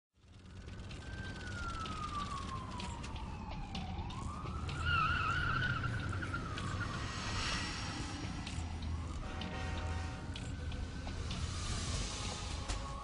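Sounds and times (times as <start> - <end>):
siren-like wail: 0.3 - 13.0
steady low rumble: 5.9 - 13.0.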